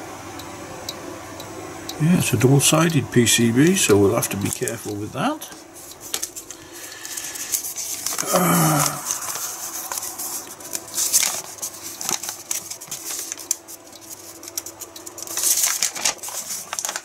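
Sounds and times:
paper crackling and rustling: 3.6 - 17.0.

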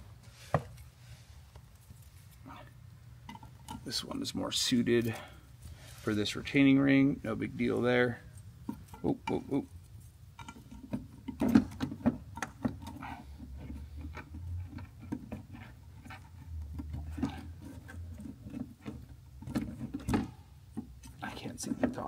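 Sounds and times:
small clicks taps and scrapes: 10.4 - 22.0.

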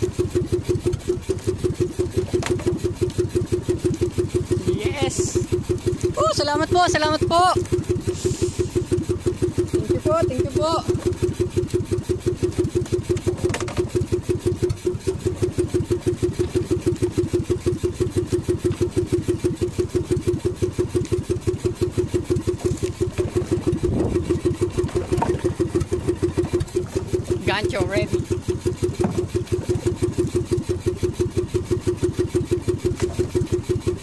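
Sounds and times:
small boat engine putting: 0.0 - 34.0.

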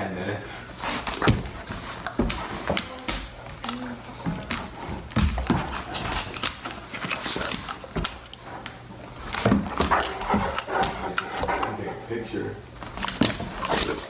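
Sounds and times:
dog jaws snapping and clicking: 6.0 - 11.8.

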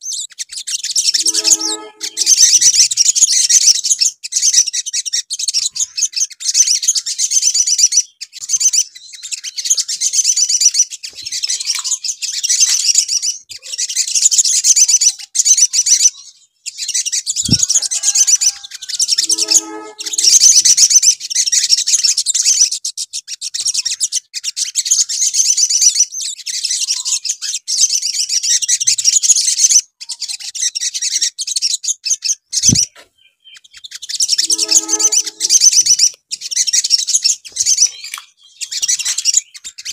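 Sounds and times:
bird twittering trills: 0.0 - 13.5, 14.8 - 22.1, 32.6 - 39.9
short lower call: 1.2 - 2.4, 19.2 - 20.6, 34.4 - 35.6.

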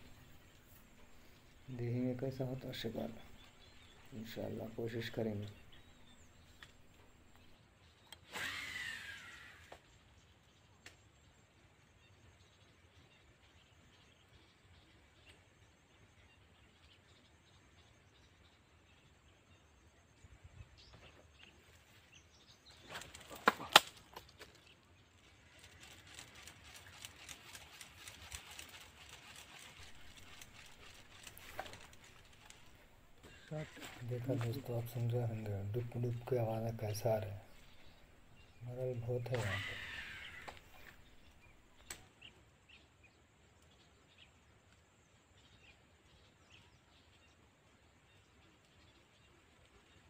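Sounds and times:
low outdoor rumble: 0.0 - 7.6, 25.2 - 41.9
fishing reel spool whirring: 8.2 - 9.8, 25.6 - 34.0, 39.1 - 41.4.

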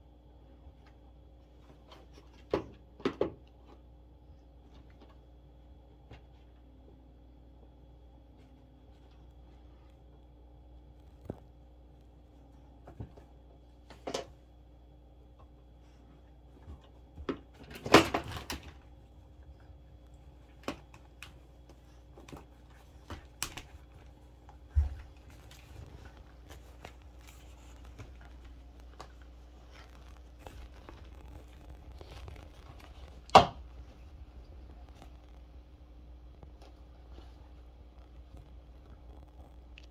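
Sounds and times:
dog rustling on blanket: 21.4 - 35.2.

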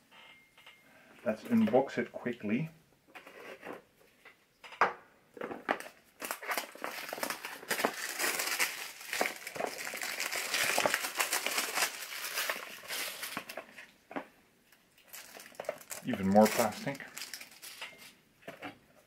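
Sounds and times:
plastic packaging crinkling: 5.4 - 13.9, 14.9 - 18.2.

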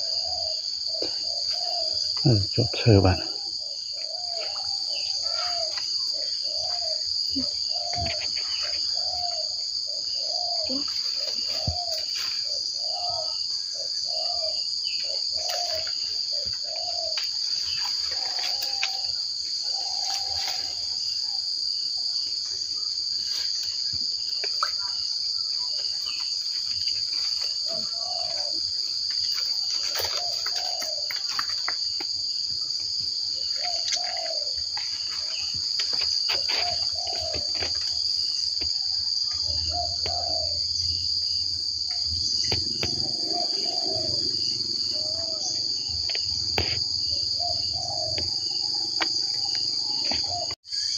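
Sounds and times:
insects droning: 0.0 - 50.9
leaves rustling: 17.0 - 19.1, 19.8 - 21.0.

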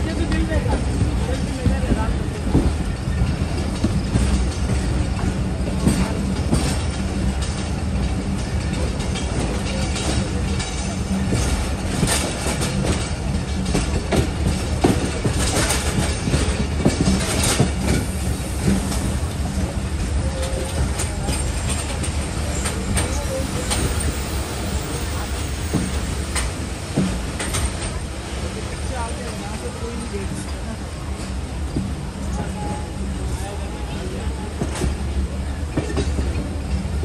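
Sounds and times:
wheels clicking over rail joints: 0.0 - 32.6
train rumbling on track: 0.0 - 37.0.

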